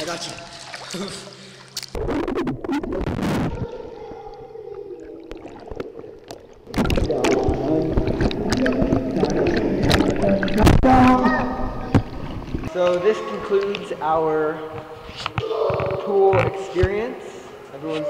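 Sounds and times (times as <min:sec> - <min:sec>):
pool water splashing: 0:00.0 - 0:16.0
muffled underwater churning: 0:00.4 - 0:12.7.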